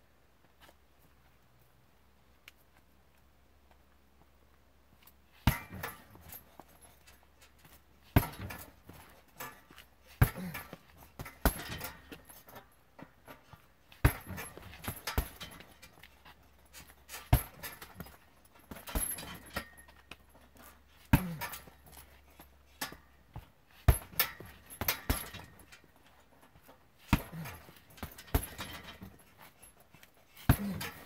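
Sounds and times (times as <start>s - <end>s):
kicks thudding on punching bag: 5.4s - 6.4s, 8.1s - 9.1s, 10.2s - 12.2s, 14.0s - 15.7s, 17.3s - 19.5s, 23.8s - 25.6s, 27.1s - 29.2s, 30.4s - 31.0s.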